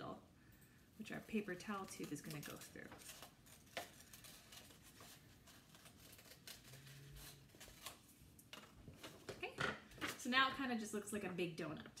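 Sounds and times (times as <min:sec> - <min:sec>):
scissors snipping paper: 0:01.0 - 0:09.1
paper rustle: 0:01.1 - 0:10.2.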